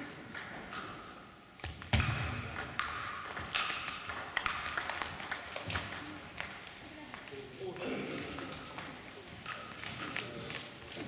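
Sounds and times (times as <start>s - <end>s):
table tennis ball clicking: 2.6s - 7.3s.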